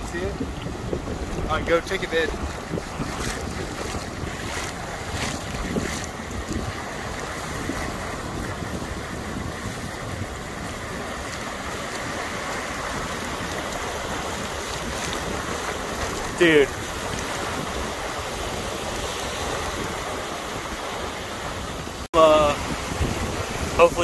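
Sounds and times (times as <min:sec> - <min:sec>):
surf washing in shallows: 0:00.0 - 0:24.0
wind buffeting microphone: 0:00.0 - 0:24.0.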